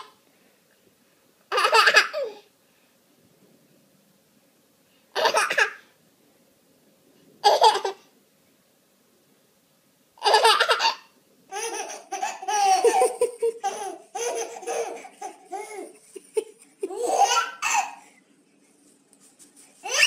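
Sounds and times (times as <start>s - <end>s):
baby laughing: 1.5s - 2.4s, 5.2s - 5.8s, 7.4s - 8.1s, 10.2s - 18.1s.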